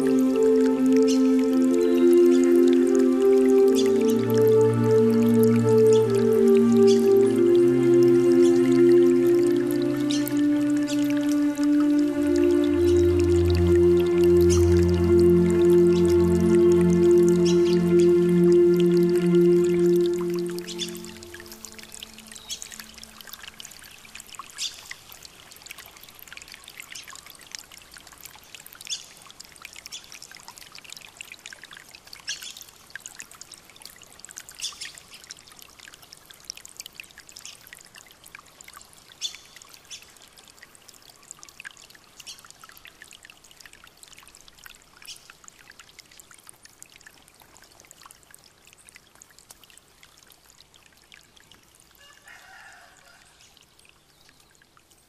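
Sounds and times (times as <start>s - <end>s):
new-age music note: 0.0s - 23.6s
water trickling and splashing: 0.0s - 55.0s.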